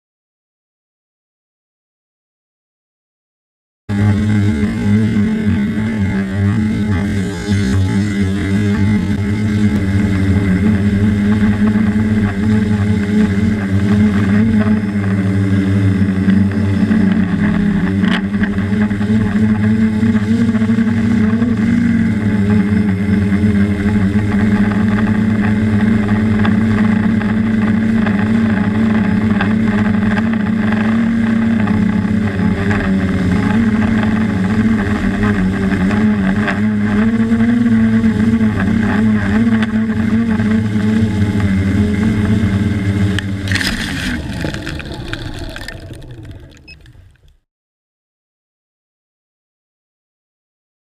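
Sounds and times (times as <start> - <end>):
drone propellers buzzing: 3.9 - 47.4.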